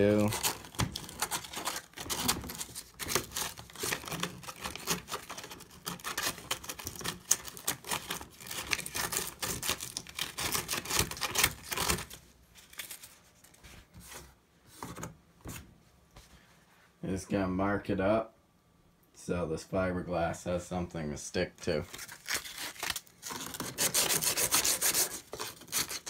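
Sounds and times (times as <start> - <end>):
sandpaper scrubbing: 23.6 - 26.0.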